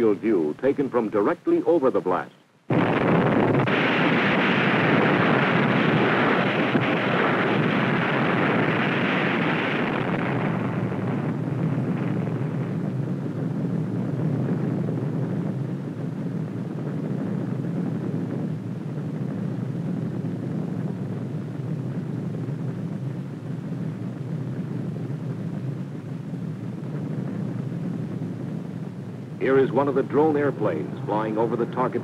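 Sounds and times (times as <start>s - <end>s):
rough rumbling roar: 29.4s - 32.0s.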